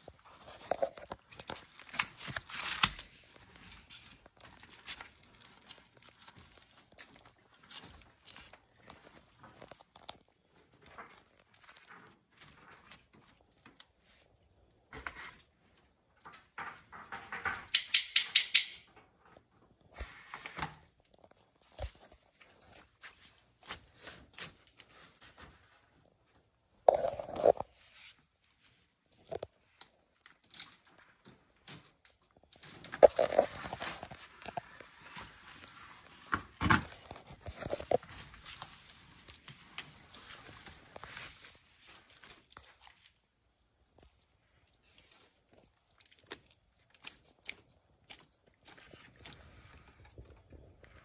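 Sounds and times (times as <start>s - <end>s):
lizard crunching raw meat: 0.2s - 14.2s, 26.9s - 28.1s, 32.4s - 51.0s.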